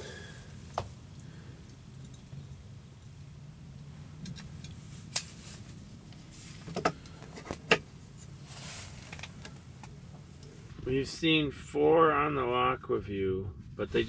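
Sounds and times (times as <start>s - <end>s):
low steady hum: 0.0s - 14.0s
soft rustles: 4.8s - 10.8s.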